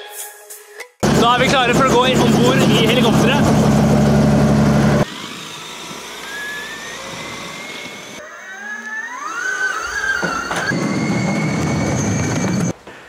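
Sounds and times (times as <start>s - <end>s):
helicopter low drone: 1.0s - 8.6s
whining tones rising in pitch: 1.0s - 12.8s.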